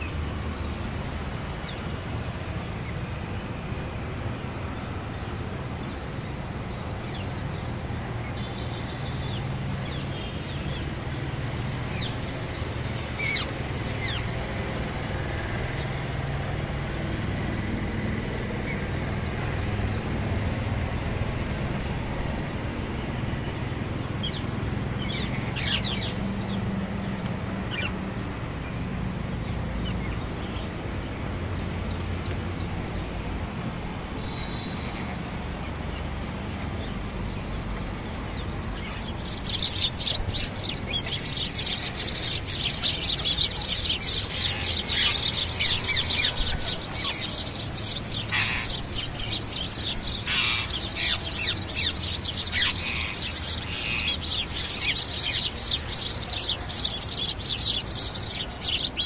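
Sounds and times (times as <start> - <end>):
low traffic rumble: 0.0 - 59.0
parakeets screeching: 13.2 - 14.2, 25.0 - 26.1, 38.7 - 59.0.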